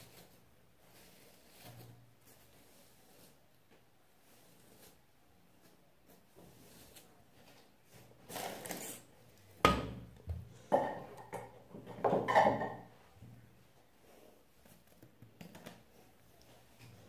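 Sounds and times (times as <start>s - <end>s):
rustling or scraping: 0.0s - 9.6s.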